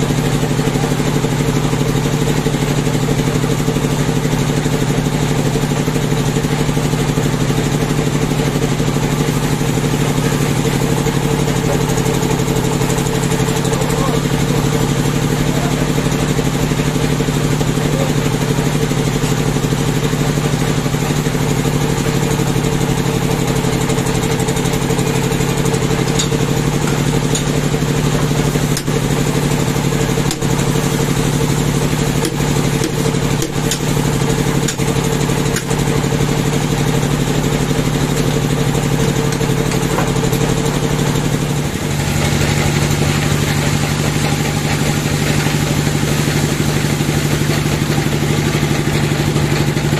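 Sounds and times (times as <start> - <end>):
band sawmill running: 0.0 - 49.9
saw blade cutting log: 31.9 - 34.9.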